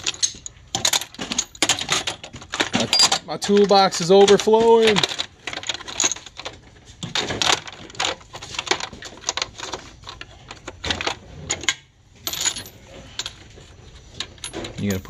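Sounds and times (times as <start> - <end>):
metal sockets clinking: 0.0 - 6.6.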